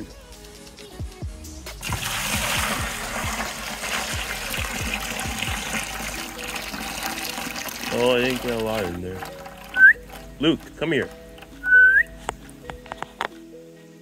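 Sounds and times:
music with deep bass: 0:00.0 - 0:06.4
water splashing into plastic bucket: 0:01.8 - 0:12.1.

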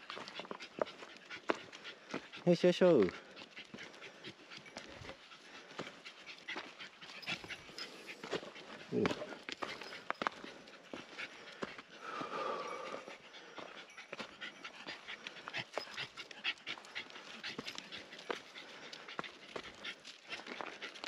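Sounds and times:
dog panting: 0:00.0 - 0:21.0.

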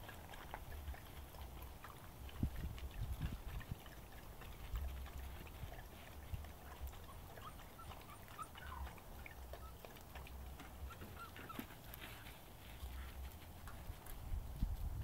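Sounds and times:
puppies squeaking and whimpering: 0:04.5 - 0:12.3.

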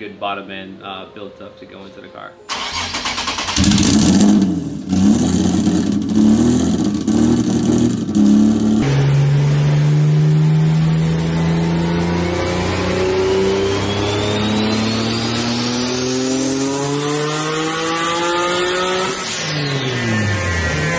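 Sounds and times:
car engine revving: 0:02.5 - 0:20.9.

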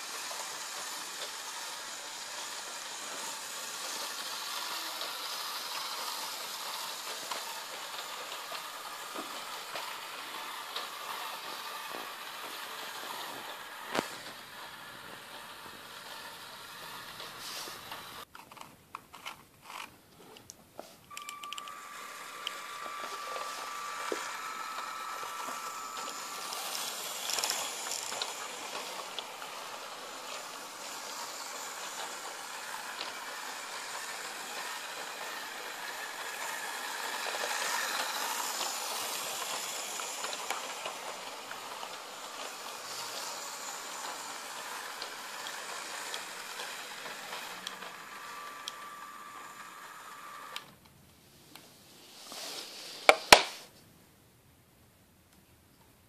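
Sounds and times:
light wheel rattle: 0:00.0 - 0:18.6, 0:21.1 - 0:50.7
toy tram motor whirring: 0:00.0 - 0:19.9, 0:21.1 - 0:50.8.

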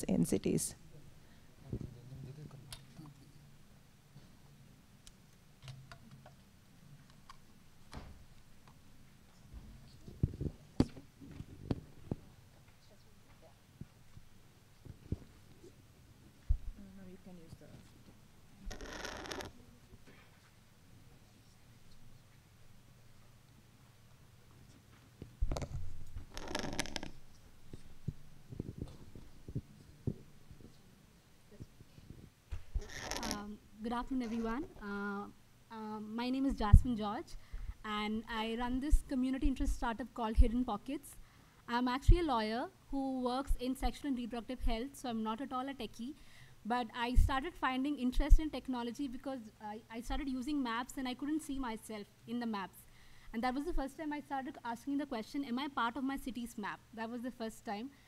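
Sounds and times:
microphone rustle: 0:14.8 - 0:15.8, 0:25.2 - 0:30.8
microphone bump with low hum: 0:16.4 - 0:16.8, 0:28.0 - 0:30.7, 0:31.6 - 0:33.3.

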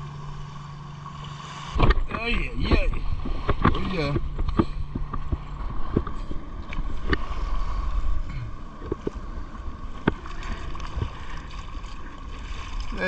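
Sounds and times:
water lapping against kayak hull: 0:00.0 - 0:13.0
light knocks on kayak: 0:01.7 - 0:07.2
wind rumble on microphone: 0:01.7 - 0:13.0.

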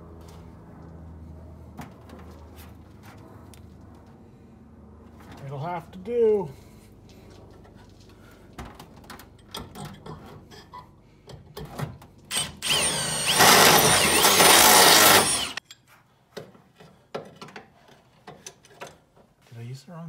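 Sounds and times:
cordless drill whining: 0:12.3 - 0:15.6.

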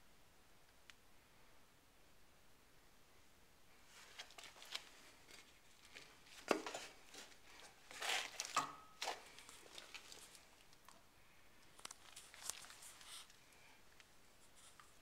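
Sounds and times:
rustling: 0:03.7 - 0:15.0.

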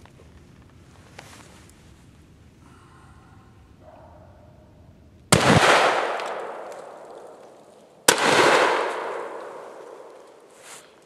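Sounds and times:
gunshots with echo: 0:05.3 - 0:10.5.

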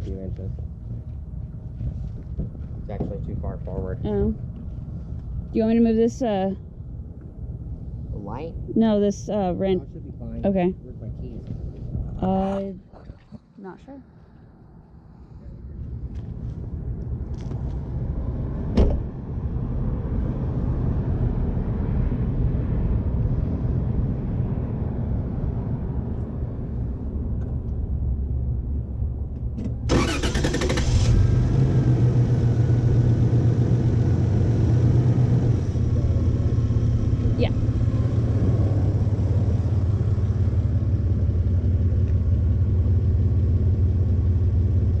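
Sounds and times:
car engine idling: 0:00.0 - 0:13.8, 0:26.6 - 0:45.0.

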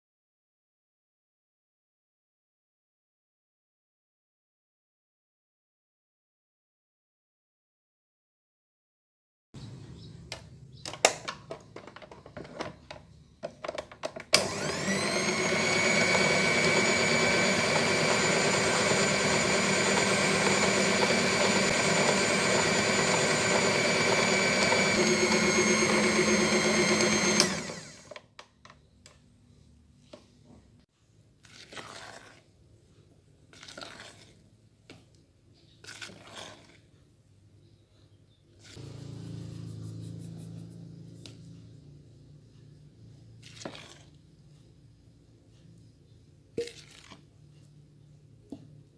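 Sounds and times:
electric stand mixer running: 0:14.4 - 0:28.2, 0:38.8 - 0:41.5
spatula scraping a mixing bowl: 0:31.3 - 0:37.2, 0:43.2 - 0:44.7, 0:46.6 - 0:47.8.

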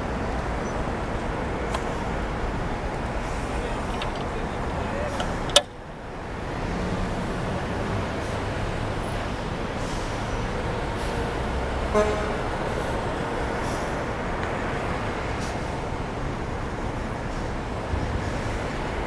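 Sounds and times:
street traffic noise: 0:00.0 - 0:19.0
vehicle horn toot: 0:11.9 - 0:12.4.

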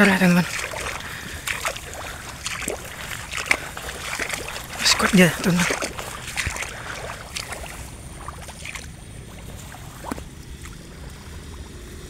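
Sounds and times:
plants brushing: 0:00.0 - 0:08.7
footsteps wading in mud: 0:00.0 - 0:11.8
water and mud sloshing: 0:00.0 - 0:12.0.

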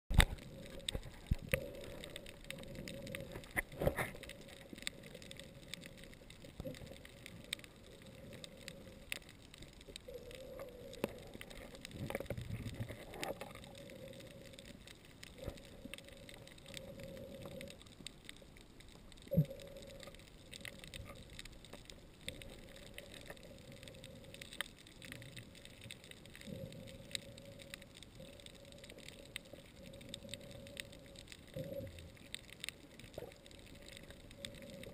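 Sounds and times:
low underwater hum: 0:00.1 - 0:34.9
underwater clicks and knocks: 0:11.0 - 0:13.6.

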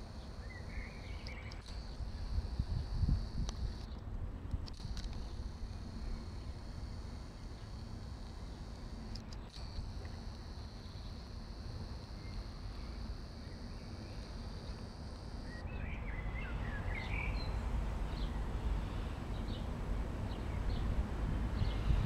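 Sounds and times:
small birds chirping: 0:00.0 - 0:02.3, 0:12.0 - 0:19.7, 0:21.5 - 0:22.0
low outdoor rumble: 0:00.0 - 0:22.0.

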